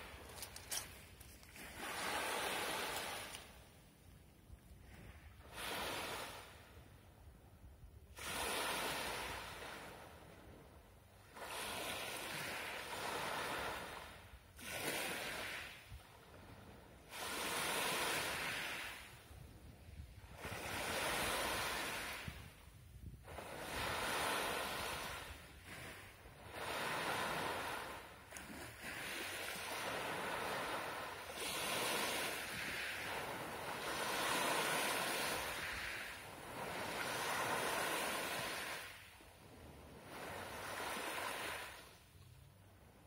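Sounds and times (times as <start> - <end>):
surf washing on pebble beach: 0.0 - 3.6, 11.4 - 15.8, 17.1 - 19.2, 20.2 - 22.6, 23.3 - 41.9.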